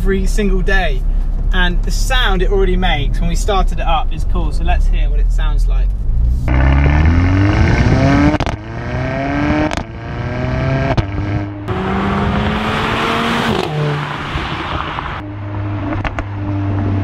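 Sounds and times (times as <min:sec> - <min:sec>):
car engine accelerating hard: 0:05.9 - 0:17.0.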